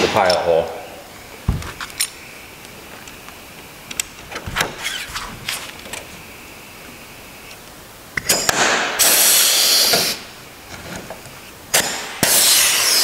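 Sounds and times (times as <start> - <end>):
air hiss: 9.0 - 10.3, 11.8 - 13.0.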